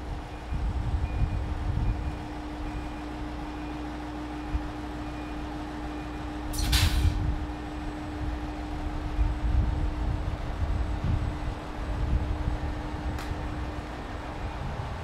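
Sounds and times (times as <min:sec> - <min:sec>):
diesel railcar engine hum: 0:00.0 - 0:15.0
compressed-air brake hiss: 0:06.5 - 0:07.2.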